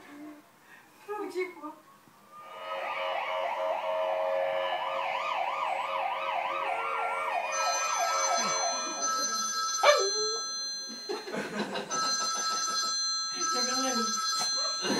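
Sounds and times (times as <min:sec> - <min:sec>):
high electronic tones: 0:02.3 - 0:11.0
ambulance siren wailing: 0:02.4 - 0:10.6.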